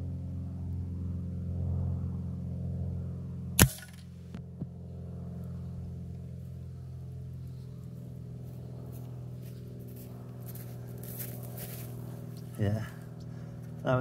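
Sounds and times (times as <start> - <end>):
low mechanical hum: 0.0 - 14.0
air rifle shot: 3.6 - 4.1.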